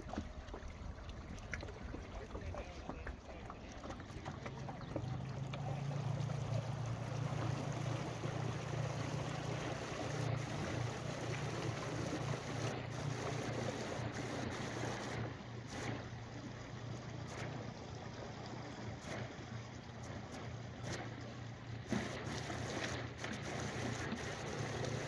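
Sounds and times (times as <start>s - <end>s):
choppy water lapping: 0.0s - 25.0s
steady low hum: 0.0s - 25.0s
wind: 0.0s - 25.0s.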